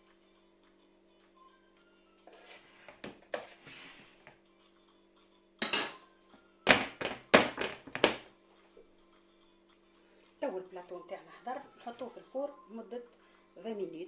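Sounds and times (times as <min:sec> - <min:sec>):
spatula scraping batter on tray: 0:02.3 - 0:04.1.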